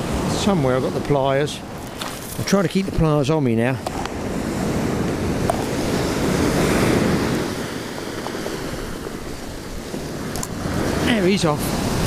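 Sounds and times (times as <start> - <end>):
wind buffeting microphone: 0.0 - 12.0
surf breaking on shingle: 1.8 - 2.9.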